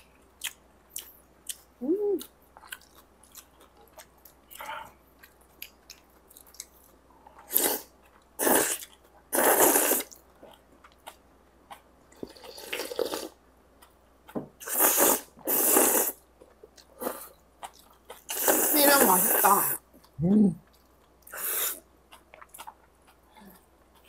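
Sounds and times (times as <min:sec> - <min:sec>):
chewing: 0:00.0 - 0:09.3, 0:16.4 - 0:18.6, 0:19.8 - 0:24.0
noodles being slurped: 0:07.5 - 0:10.2, 0:18.3 - 0:19.6.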